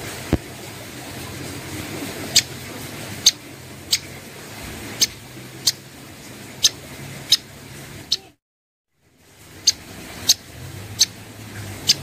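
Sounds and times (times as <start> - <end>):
bird ticking call notes: 2.3 - 2.6, 3.2 - 4.2, 5.0 - 5.8, 6.6 - 7.5, 9.6 - 11.2, 11.8 - 12.0.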